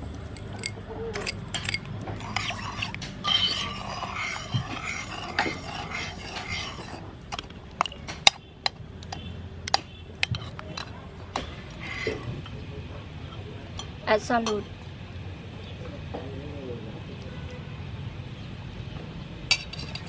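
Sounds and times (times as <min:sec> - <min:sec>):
spoon swishing liquid: 0:01.2 - 0:07.0, 0:11.8 - 0:12.3.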